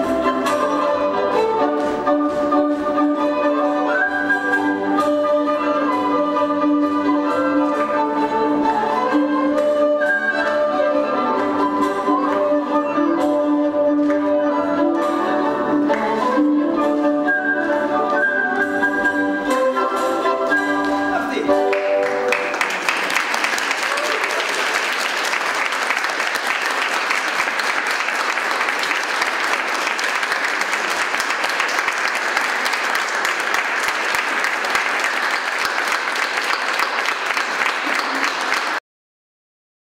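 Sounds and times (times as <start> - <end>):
audience applauding: 21.6 - 38.8.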